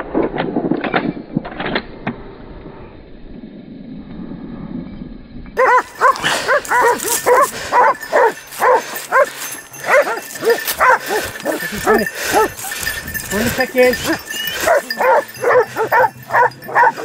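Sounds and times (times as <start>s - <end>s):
hounds barking: 5.6s - 17.0s.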